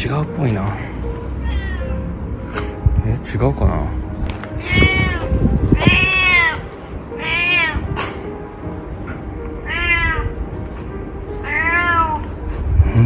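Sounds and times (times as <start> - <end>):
cat meowing: 1.4 - 2.1, 4.5 - 7.9, 9.6 - 10.4, 11.4 - 12.2.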